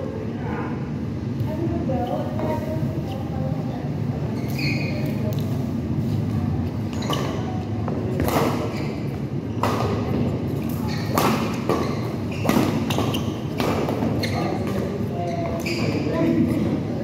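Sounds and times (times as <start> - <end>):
steady low hum: 0.0 - 17.0
rackets smacking shuttlecock: 9.6 - 14.3.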